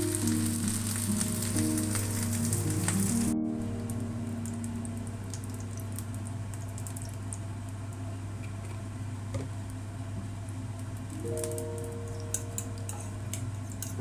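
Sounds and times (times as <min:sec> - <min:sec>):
oil crackling in pan: 0:00.0 - 0:03.4, 0:04.3 - 0:14.0.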